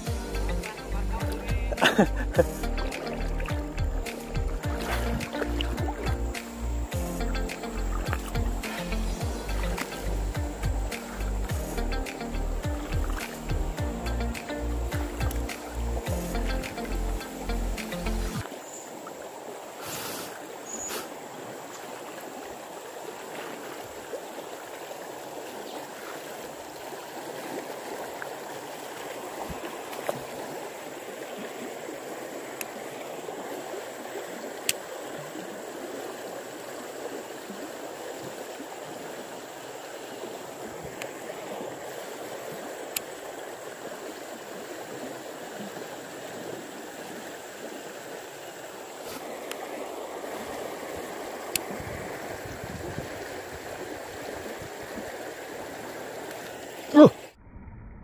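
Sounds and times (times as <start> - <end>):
river rapids rushing: 0.0 - 18.6, 38.4 - 57.2.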